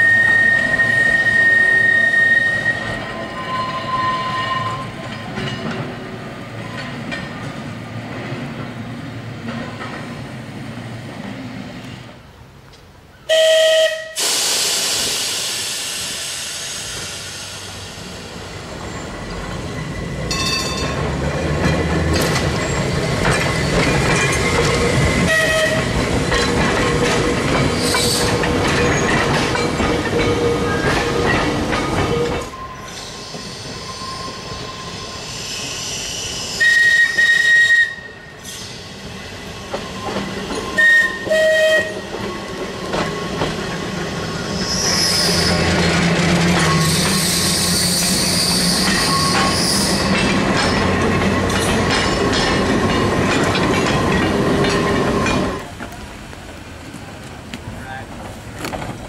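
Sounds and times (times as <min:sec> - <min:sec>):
tram whistle blasts: 0:00.0 - 0:05.0, 0:13.3 - 0:15.1, 0:25.2 - 0:26.0, 0:32.1 - 0:38.8, 0:39.8 - 0:42.2, 0:46.7 - 0:50.2
tram rumbling past on rails: 0:00.0 - 0:59.0.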